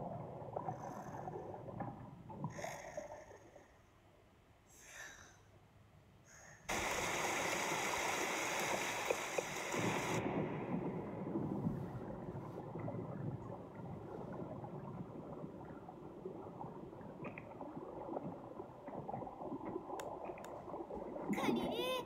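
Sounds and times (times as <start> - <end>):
muffled underwater stream rush: 0.0 - 3.3, 6.7 - 22.0
faint clicks: 19.6 - 20.8.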